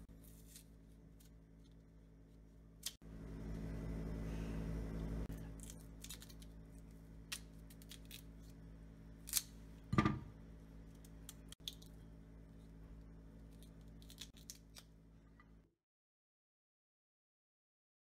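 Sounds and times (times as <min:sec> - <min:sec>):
low hum: 0:00.0 - 0:15.7.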